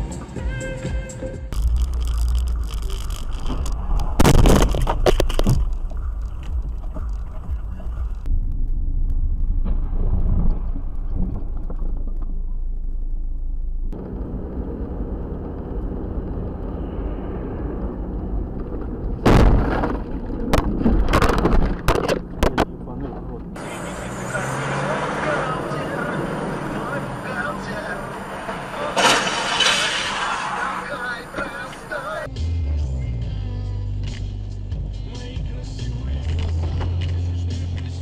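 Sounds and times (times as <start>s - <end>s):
car engine and road noise: 0.0s - 38.0s
car crash impacts: 4.1s - 5.8s, 18.8s - 22.7s, 27.9s - 32.2s.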